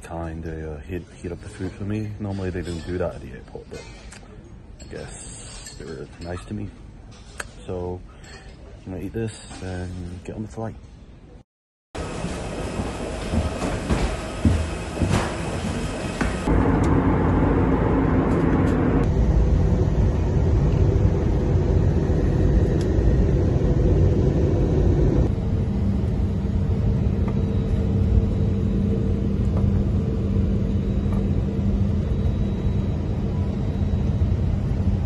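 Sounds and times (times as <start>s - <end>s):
jet cabin engine roar: 12.0s - 35.0s
steady low hum: 12.0s - 35.0s.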